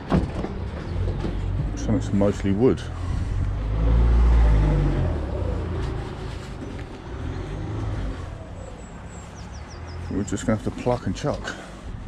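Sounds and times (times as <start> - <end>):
vehicle driving past: 0.7 - 10.2.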